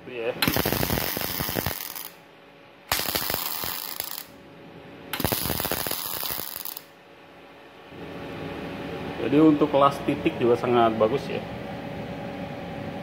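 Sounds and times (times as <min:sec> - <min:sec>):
welding arc crackling: 0:00.4 - 0:02.2, 0:02.9 - 0:04.3, 0:05.2 - 0:06.9.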